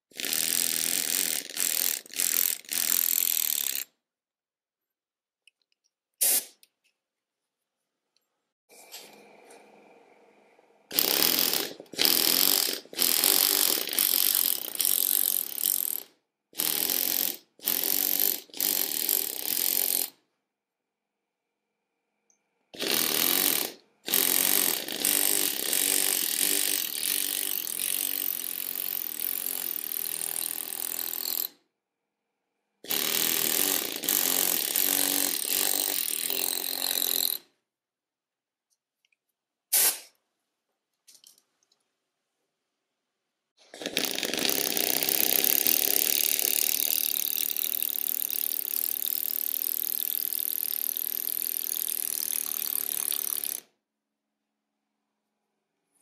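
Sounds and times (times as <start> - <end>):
pneumatic hammer chiselling stone: 10.9 - 20.2, 22.8 - 31.6, 32.9 - 37.5, 43.8 - 53.7.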